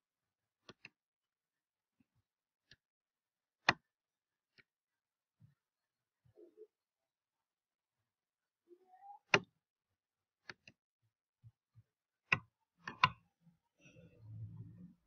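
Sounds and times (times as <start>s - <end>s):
computer mouse clicks: 10.4s - 10.8s, 12.3s - 13.2s.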